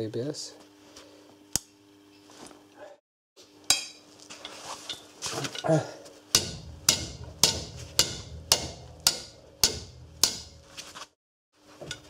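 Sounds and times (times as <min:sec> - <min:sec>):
hammer striking steel punch: 0:03.7 - 0:04.0, 0:06.3 - 0:10.7.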